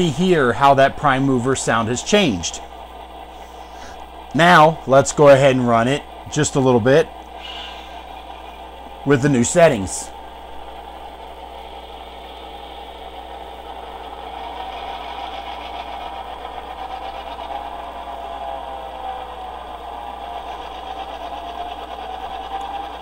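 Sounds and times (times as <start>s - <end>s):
model locomotive diesel engine sound: 0.0s - 23.0s.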